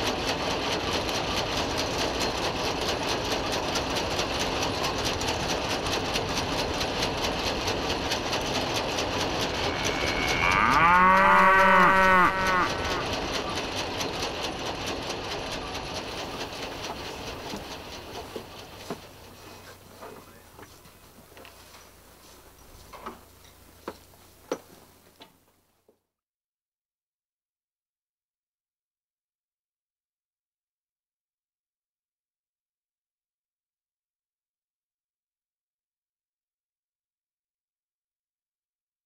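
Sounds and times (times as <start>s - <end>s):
steady machinery noise: 0.0s - 25.3s
cow mooing: 9.4s - 13.2s.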